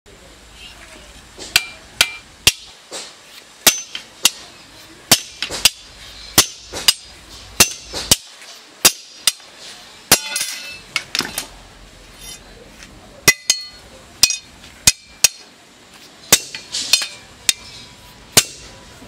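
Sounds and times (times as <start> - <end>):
steel blanks clattering: 1.4 - 11.5, 13.2 - 15.5, 16.2 - 18.7
hammer striking steel: 1.5 - 4.5, 5.1 - 9.5, 10.1 - 11.4, 13.2 - 15.5, 16.3 - 18.7.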